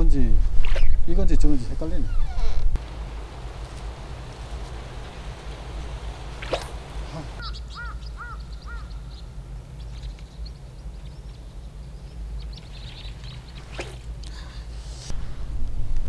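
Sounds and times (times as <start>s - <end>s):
low background noise: 0.0s - 16.0s
bird calling: 2.0s - 14.4s
small birds chirping: 2.0s - 14.8s
brief swish: 6.4s - 7.3s, 13.6s - 14.1s, 14.7s - 15.2s.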